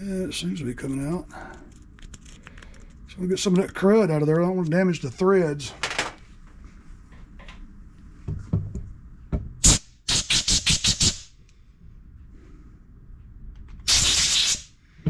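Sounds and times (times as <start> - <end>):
compressed air blow gun blasts: 9.6 - 11.3, 13.9 - 14.8.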